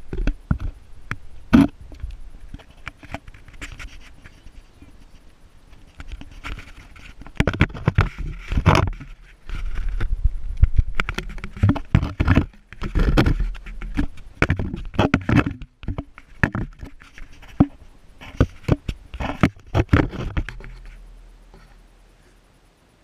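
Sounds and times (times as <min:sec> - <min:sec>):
camera handling knocks and scrapes: 0:05.8 - 0:10.1, 0:10.7 - 0:21.0.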